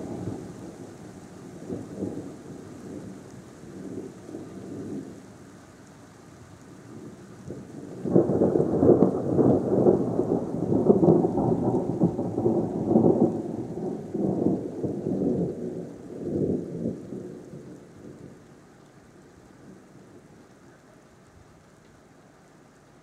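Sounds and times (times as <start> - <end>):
rain falling: 0.0 - 23.0
rolling thunder: 6.9 - 18.4.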